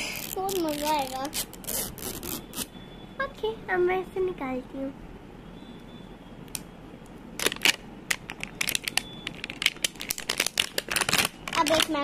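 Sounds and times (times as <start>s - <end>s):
plastic wrapper crinkling: 0.0s - 1.7s, 7.4s - 12.0s.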